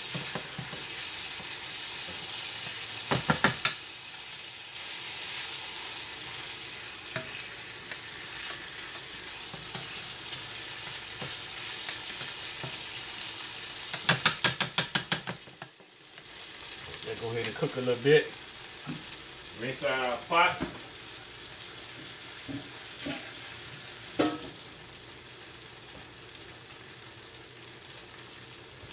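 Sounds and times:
wooden spatula stirring: 0:00.0 - 0:02.8
rice sizzling in oil: 0:00.0 - 0:28.9.

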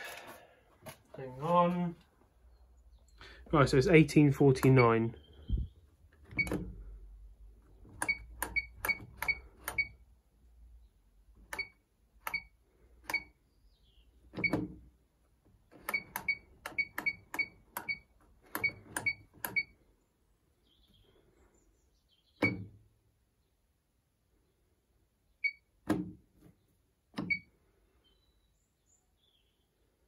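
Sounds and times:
washing machine knob click-beeps: 0:04.6 - 0:05.0, 0:06.3 - 0:06.7, 0:08.0 - 0:10.0, 0:11.5 - 0:13.4, 0:14.4 - 0:14.7, 0:15.8 - 0:19.7, 0:22.4 - 0:22.7, 0:25.4 - 0:25.7, 0:27.2 - 0:27.5.

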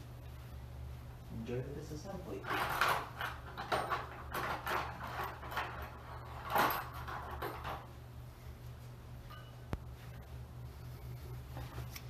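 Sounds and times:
low electrical hum: 0:00.0 - 0:12.0
handling noises scraping and rustling: 0:02.3 - 0:12.0.

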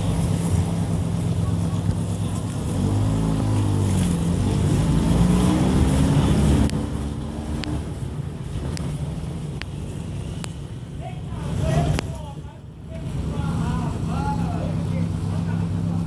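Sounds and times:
truck accelerating past: 0:00.0 - 0:08.9.

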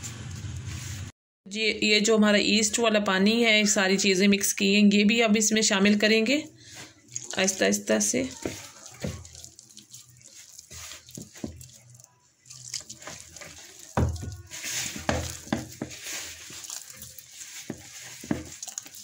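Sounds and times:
hand kneading dough in a bowl: 0:05.9 - 0:19.0.

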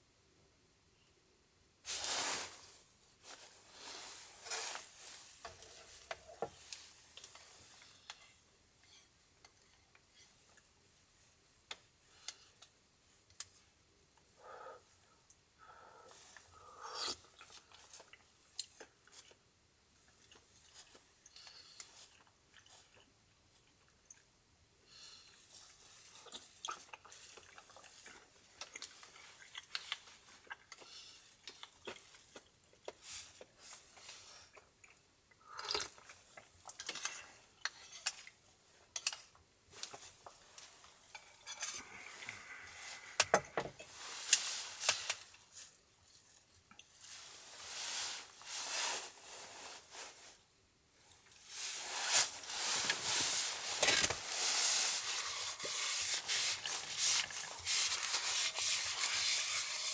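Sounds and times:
rustling: 0:01.8 - 0:09.1, 0:36.8 - 0:59.9.

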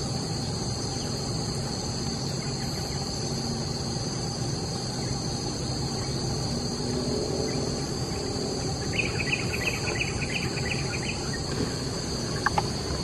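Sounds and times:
high insect drone: 0:00.0 - 0:13.0
low background rumble: 0:00.0 - 0:13.0
bird chirping: 0:07.4 - 0:12.7.

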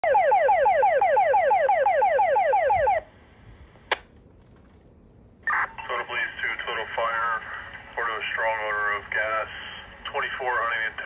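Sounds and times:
radio static: 0:05.4 - 0:11.0.

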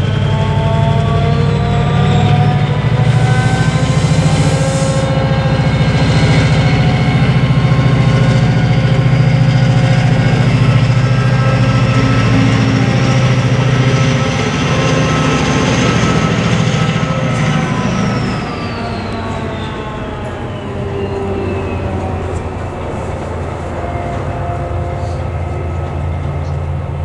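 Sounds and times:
diesel locomotive engine running: 0:00.0 - 0:27.0
high whine: 0:00.0 - 0:27.0.

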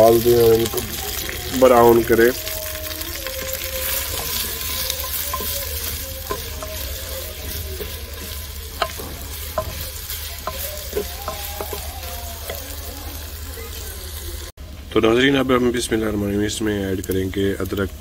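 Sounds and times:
onions sizzling in hot oil: 0:00.0 - 0:14.6, 0:15.5 - 0:18.0
wooden spoon scraping clay pot: 0:02.4 - 0:12.8.

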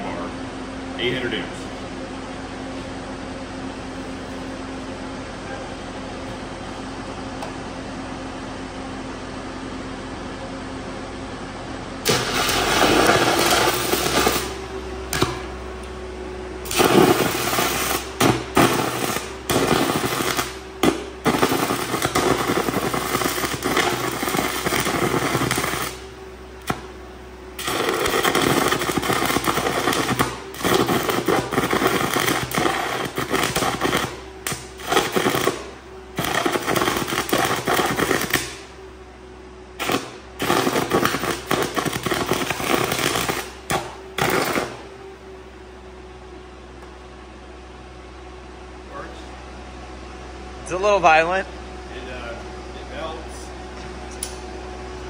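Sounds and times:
welder engine humming: 0:11.3 - 0:47.0, 0:50.1 - 0:55.0
welding arc crackling: 0:12.0 - 0:15.5, 0:16.6 - 0:38.7, 0:39.8 - 0:44.9.

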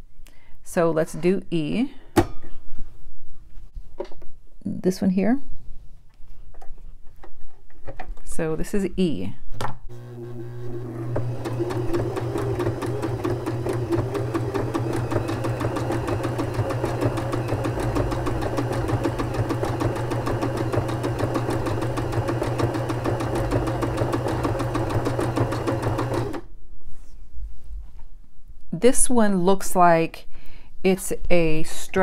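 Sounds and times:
sewing machine running: 0:09.9 - 0:26.5.

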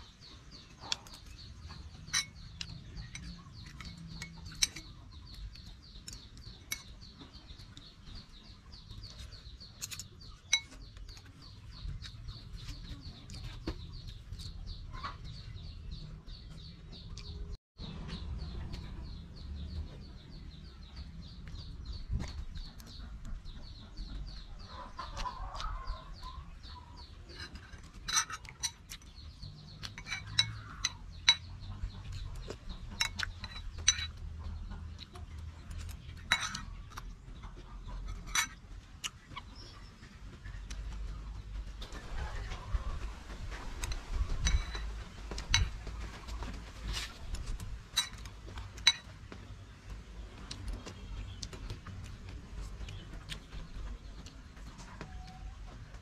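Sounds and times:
chickens clucking: 0:00.0 - 0:56.0
spoon clinking on metal bowl: 0:02.1 - 0:04.9.

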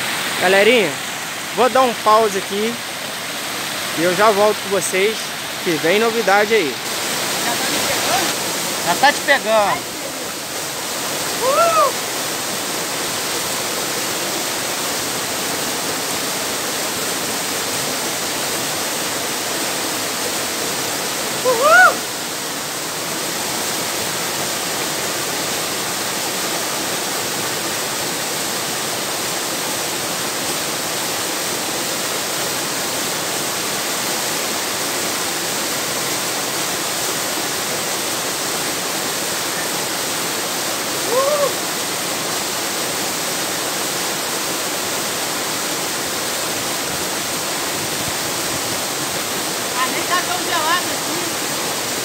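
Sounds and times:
waterfall rushing: 0:00.0 - 0:52.0
person whooping: 0:11.3 - 0:12.0, 0:21.4 - 0:22.1, 0:41.0 - 0:41.6.

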